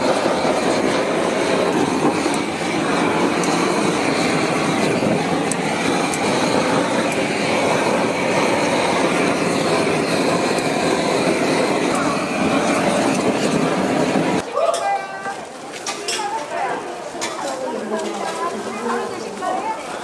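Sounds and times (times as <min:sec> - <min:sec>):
cooking torch flame: 0:00.0 - 0:14.4
meat searing on griddle: 0:00.0 - 0:14.4
crowd chatter: 0:00.0 - 0:20.0.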